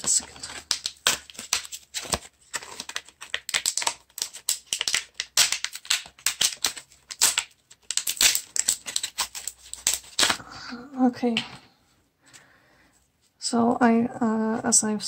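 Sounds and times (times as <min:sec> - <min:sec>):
plastic packaging crinkling: 0:00.0 - 0:10.4.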